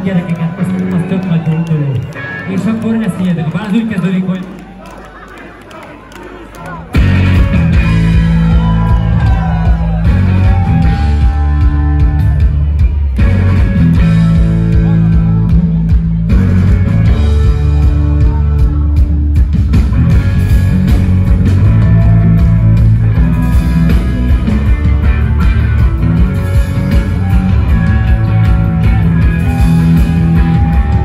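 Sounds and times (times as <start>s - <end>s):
rock band playing live: 6.8s - 31.0s.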